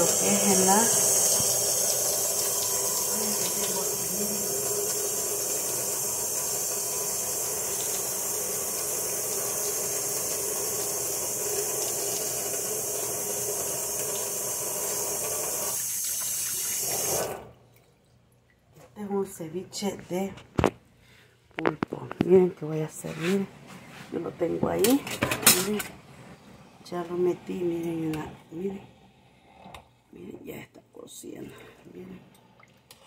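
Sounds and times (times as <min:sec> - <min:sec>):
faucet running into metal sink: 0:00.0 - 0:17.6.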